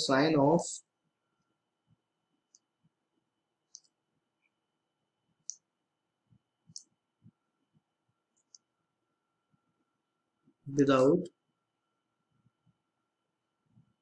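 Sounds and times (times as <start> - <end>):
computer mouse clicks: 3.7 - 4.0, 5.4 - 5.7, 6.7 - 7.0.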